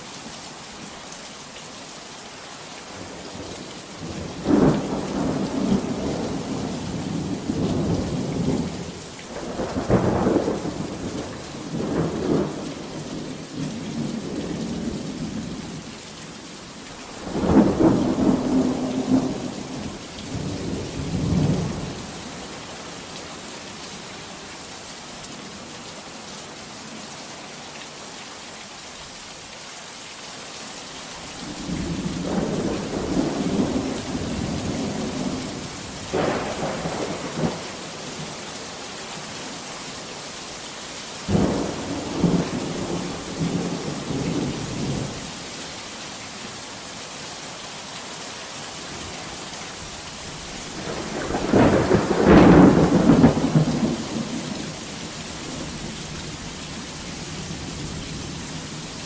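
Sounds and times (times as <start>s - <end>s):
pouring rain: 0.0s - 59.0s
thunder rolling: 41.3s - 45.0s, 50.7s - 54.5s.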